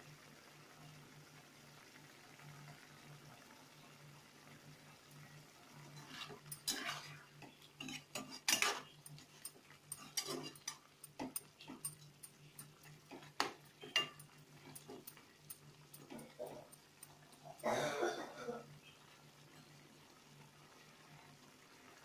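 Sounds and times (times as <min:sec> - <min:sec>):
metal spatula scraping a pan: 0:05.8 - 0:17.6.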